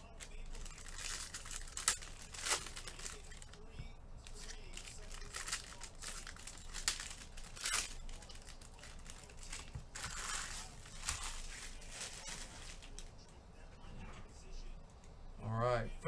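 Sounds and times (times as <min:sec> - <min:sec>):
plastic wrapping crinkling: 0:00.0 - 0:13.4.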